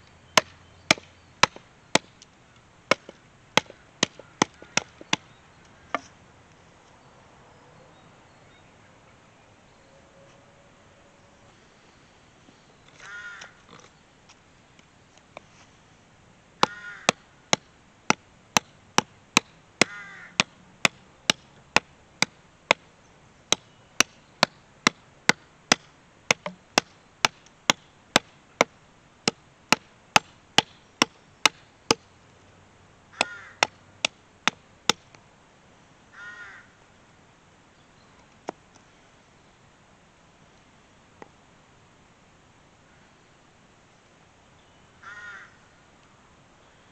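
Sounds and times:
hatchet chopping branch on wood: 0.4 - 2.3, 2.9 - 5.3, 5.9 - 6.1, 16.6 - 22.8, 23.5 - 32.0, 33.2 - 35.1
bird harsh calls: 12.9 - 14.0, 16.6 - 17.2, 19.8 - 20.4, 33.1 - 33.7, 45.0 - 45.8.

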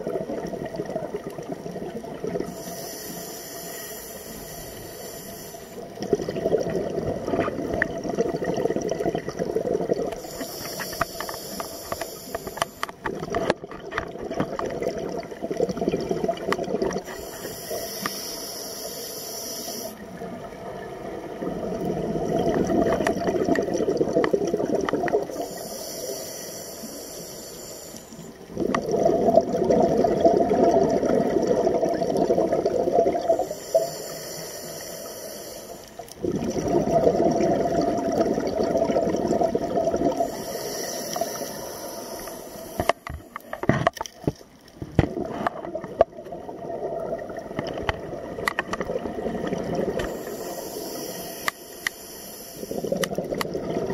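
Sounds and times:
exhaust bubbles underwater: 0.0 - 2.7, 5.8 - 10.6, 13.0 - 17.3, 20.0 - 25.6, 28.3 - 34.0, 36.0 - 43.1, 44.9 - 50.6, 52.6 - 53.9
regulator hissing inhale: 2.4 - 6.0, 10.1 - 13.0, 17.0 - 20.1, 25.3 - 28.4, 33.4 - 36.2, 40.1 - 43.4, 49.9 - 53.1.

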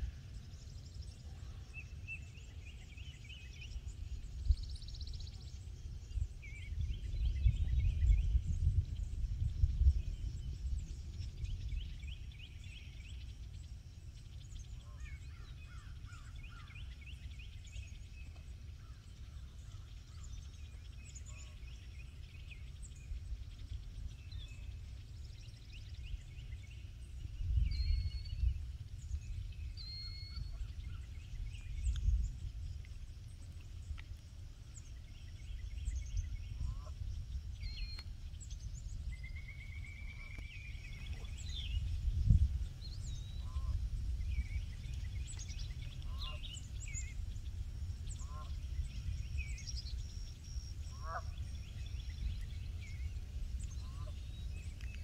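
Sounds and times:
wind rumble on microphone: 0.0 - 55.0
birds chirping and trilling: 34.8 - 55.0.

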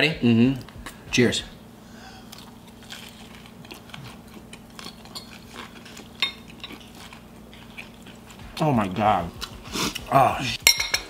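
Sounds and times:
quiet chewing: 2.2 - 8.6
metal fork clinking ceramic bowl: 6.2 - 6.8, 10.7 - 11.0.

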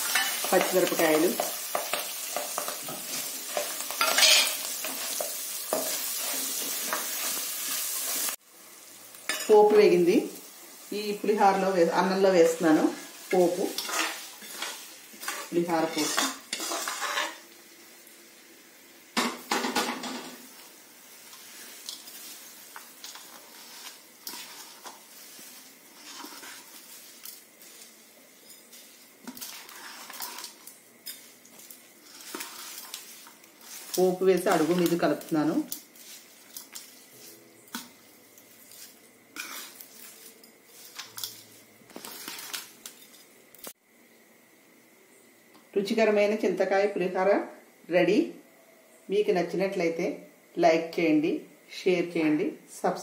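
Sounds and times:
spoon scraping a metal bowl: 1.7 - 7.0, 13.7 - 17.4, 25.9 - 27.4, 28.4 - 33.0, 38.7 - 43.2.

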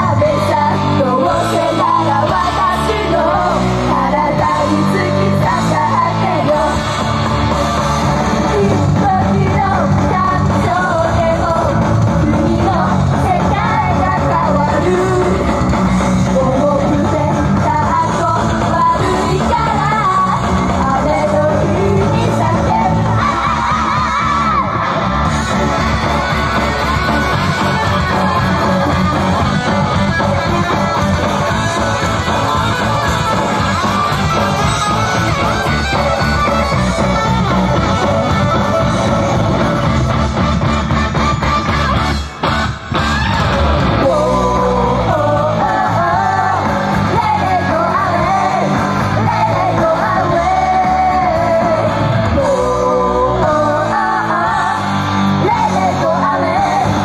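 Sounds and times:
group singing rock song: 0.0 - 57.0
shouts: 22.7 - 28.9.

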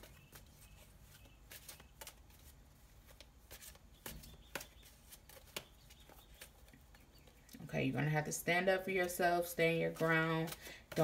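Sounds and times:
cards rustling: 0.0 - 11.0
playing cards clicking: 3.1 - 7.0.

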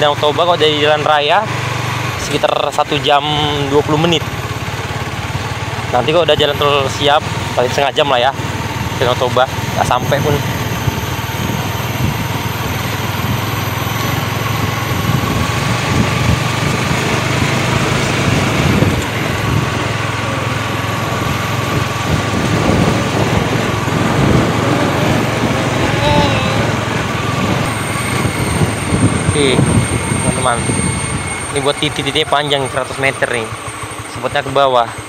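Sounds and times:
motorcycle engine running: 0.0 - 35.0
wind noise on microphone: 10.4 - 31.4.

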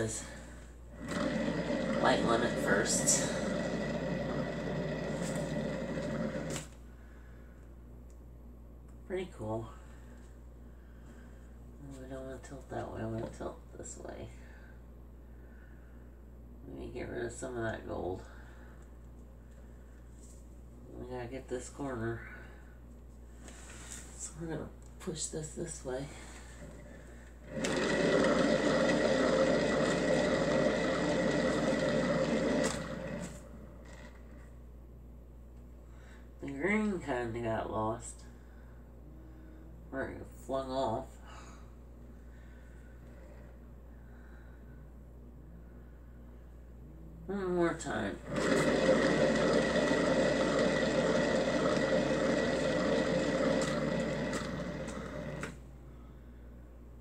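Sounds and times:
paint spinner whirring: 0.0 - 7.2, 25.6 - 34.6, 47.3 - 55.8
motorized spinner whirring: 48.3 - 55.6.

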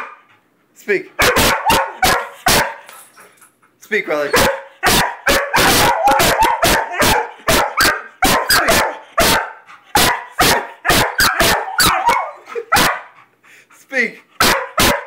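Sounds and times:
dog barking rapidly: 1.2 - 2.8, 4.3 - 13.2, 14.4 - 15.0.

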